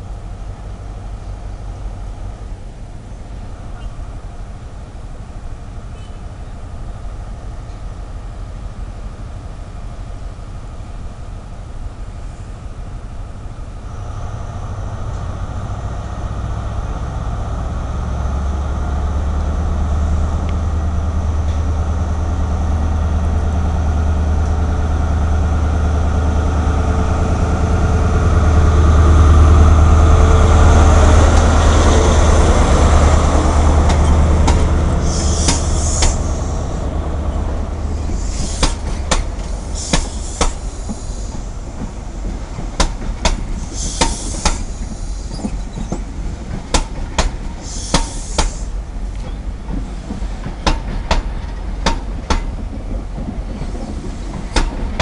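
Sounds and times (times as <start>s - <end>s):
diesel train engine drone: 0.0s - 55.0s
train wheels squealing: 5.9s - 6.3s, 35.0s - 37.4s, 38.0s - 41.6s, 43.6s - 46.1s, 47.5s - 50.2s
train wheels clicking over rail joints: 31.1s - 55.0s.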